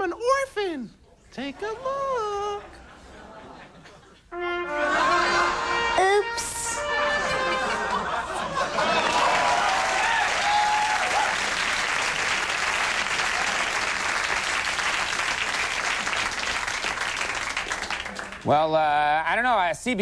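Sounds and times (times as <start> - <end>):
audience applauding: 7.2 - 18.6.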